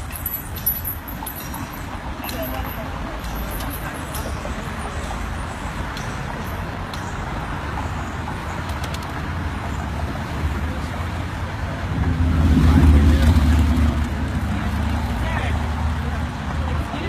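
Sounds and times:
road traffic rumble: 0:00.0 - 0:17.0
passing vehicle engine: 0:04.7 - 0:17.0.

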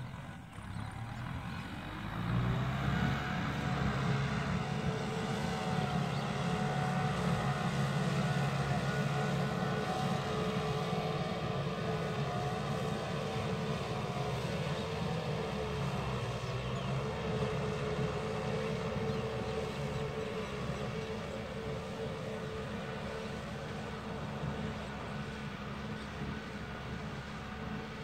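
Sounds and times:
tractor engine drone: 0:00.0 - 0:28.0.

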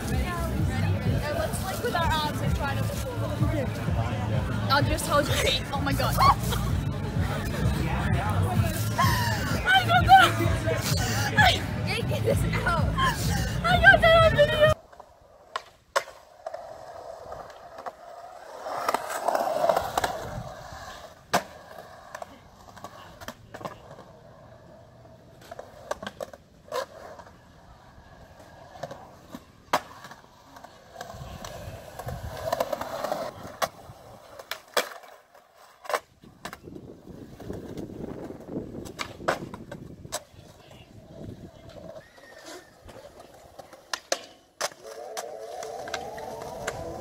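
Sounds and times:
skateboard wheels rolling on concrete: 0:00.0 - 0:47.0
skateboard clacking on ground: 0:14.6 - 0:47.0.

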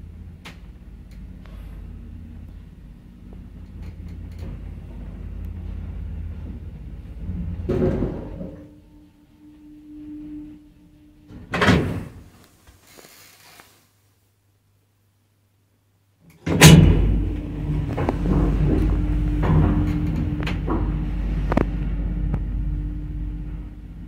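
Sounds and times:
lift car rumbling: 0:00.0 - 0:12.5, 0:16.3 - 0:24.0
steady hum: 0:00.0 - 0:13.0, 0:14.3 - 0:24.0
sliding door opening with a bang: 0:07.2 - 0:08.8, 0:11.3 - 0:12.3, 0:16.3 - 0:23.7
lift stopping with a clunk: 0:16.4 - 0:24.0.

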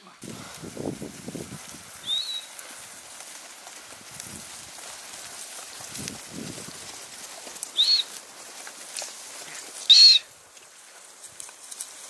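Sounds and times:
bird calling: 0:02.0 - 0:02.9, 0:07.4 - 0:08.2, 0:09.4 - 0:10.4.

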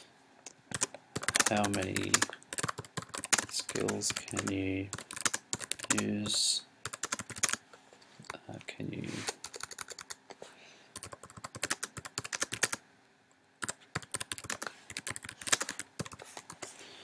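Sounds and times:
keyboard typing: 0:00.7 - 0:07.6, 0:09.3 - 0:10.2, 0:11.0 - 0:12.8, 0:13.6 - 0:16.7.

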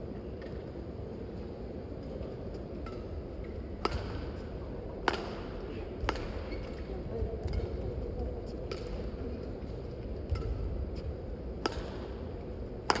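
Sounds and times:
steady background noise: 0:00.0 - 0:13.0
racket striking shuttlecock: 0:02.8 - 0:04.4, 0:05.0 - 0:06.8, 0:08.7 - 0:09.1, 0:10.2 - 0:10.8, 0:11.6 - 0:13.0.

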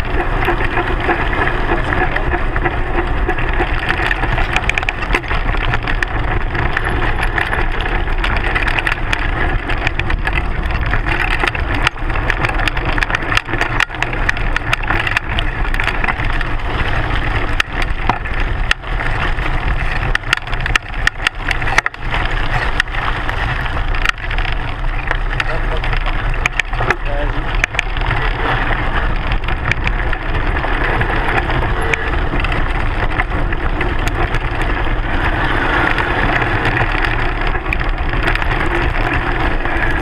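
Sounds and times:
bike tyre rolling on gravel: 0:00.0 - 0:40.0
stones clicking and rattling: 0:00.0 - 0:40.0.

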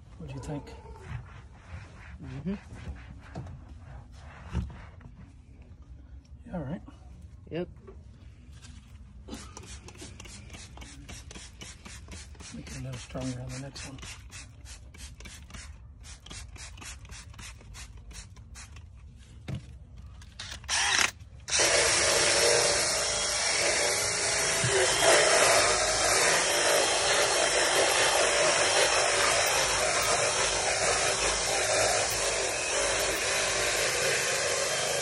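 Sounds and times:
cordless drill spinning a scrub brush: 0:20.4 - 0:35.0.

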